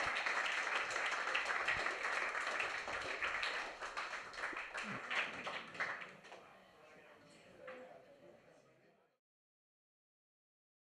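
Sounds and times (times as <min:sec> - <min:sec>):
audience applause: 0:00.0 - 0:06.5.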